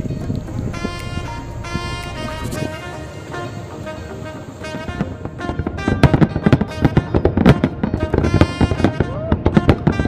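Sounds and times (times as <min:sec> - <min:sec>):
fireworks bursting and crackling: 0:00.0 - 0:10.0
music playing: 0:00.0 - 0:10.0.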